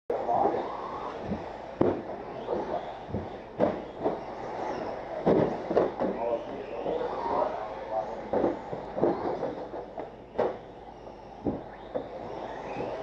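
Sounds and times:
rc buggies rumbling and clattering: 0:00.2 - 0:13.0
sharp knocks: 0:01.2 - 0:04.2, 0:05.2 - 0:06.2, 0:10.4 - 0:10.6.

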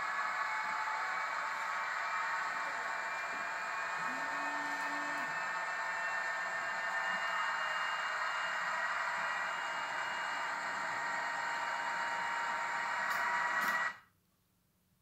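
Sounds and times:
model locomotive whine and hiss: 0:00.0 - 0:14.1.

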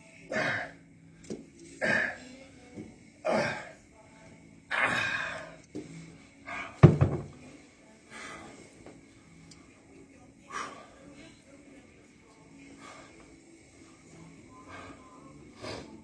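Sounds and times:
dumbbells set down thunk: 0:06.8 - 0:07.4.

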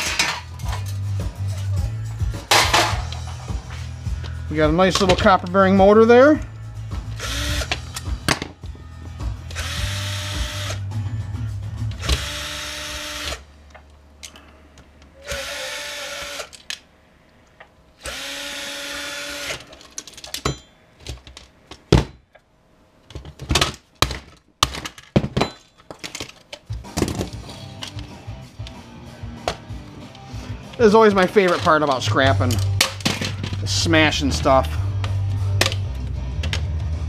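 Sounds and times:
cordless drill running: 0:07.2 - 0:07.8, 0:09.5 - 0:10.8, 0:12.0 - 0:13.4, 0:15.2 - 0:16.5, 0:18.0 - 0:19.7.

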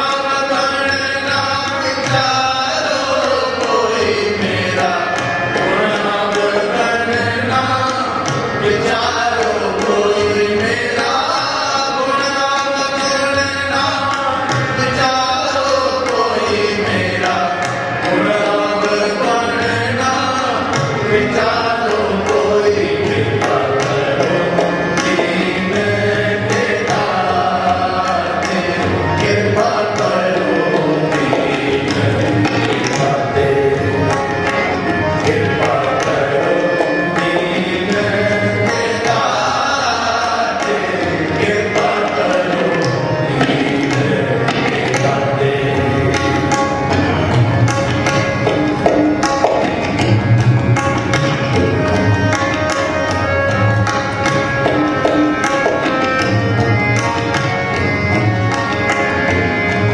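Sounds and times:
harmonium: 0:00.0 - 0:59.9
man singing devotional melody: 0:00.0 - 0:59.9
tabla strokes: 0:00.0 - 0:59.9.

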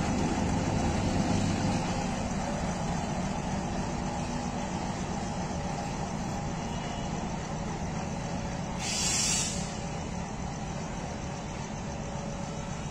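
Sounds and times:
diesel locomotive engine running: 0:00.0 - 0:12.9
air brakes hissing: 0:08.6 - 0:10.2.

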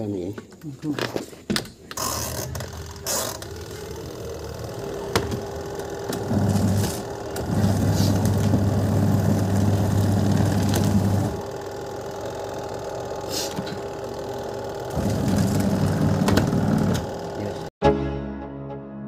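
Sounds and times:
knocks and rustles of handling: 0:00.3 - 0:02.8
washing machine motor humming: 0:01.8 - 0:17.7.

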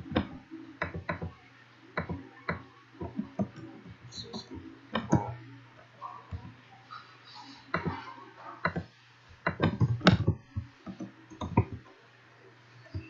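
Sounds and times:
keyboard typing: 0:00.0 - 0:01.4, 0:02.0 - 0:05.4, 0:08.6 - 0:11.8.

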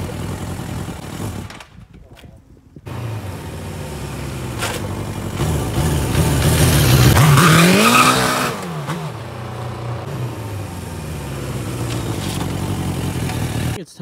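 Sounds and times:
motorcycle engine revving: 0:00.0 - 0:01.6, 0:02.8 - 0:13.8
tire squeal: 0:04.3 - 0:10.0.

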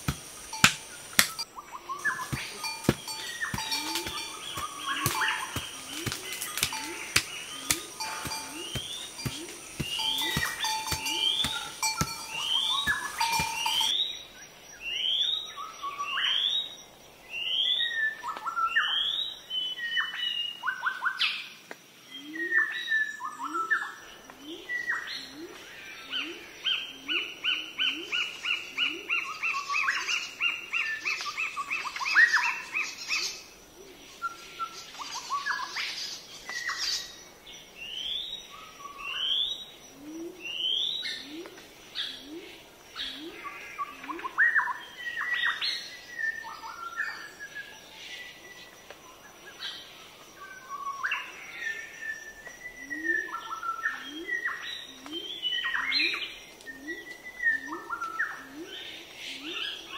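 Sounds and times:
birds singing: 0:00.0 - 0:21.5, 0:22.1 - 0:59.9
steady thin high tone: 0:02.0 - 0:13.9
dull thumps: 0:02.1 - 0:13.9.

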